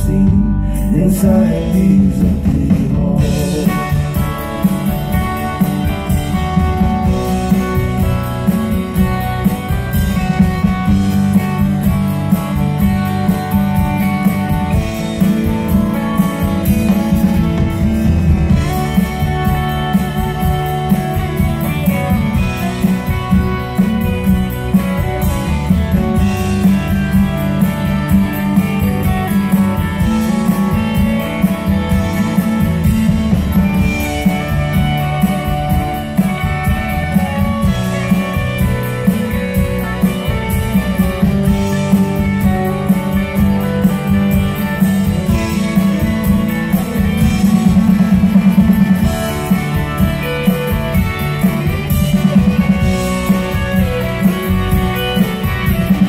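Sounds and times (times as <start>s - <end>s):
live rock band playing: 0.0s - 56.0s.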